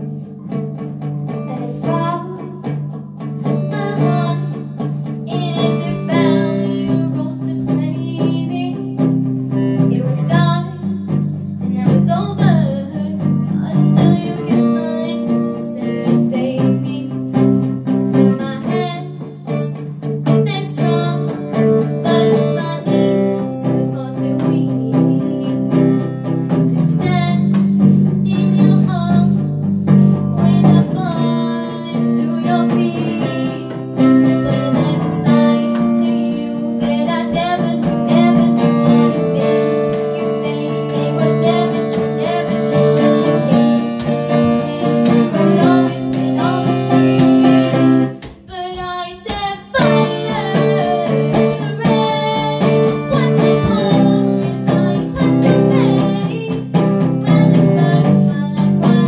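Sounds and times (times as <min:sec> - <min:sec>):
girl singing into a microphone: 0:00.0 - 0:59.0
guitar chords: 0:00.0 - 0:59.0.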